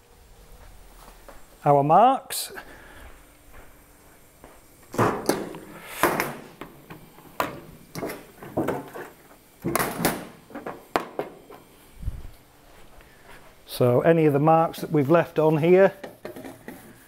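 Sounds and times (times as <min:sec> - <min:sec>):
objects clunking on steel workbench: 0:04.9 - 0:11.7, 0:16.0 - 0:16.9.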